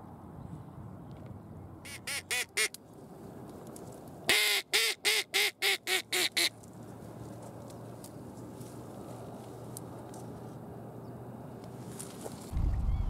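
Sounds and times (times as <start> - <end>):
duck call quacking: 1.9 - 2.8, 4.3 - 6.5.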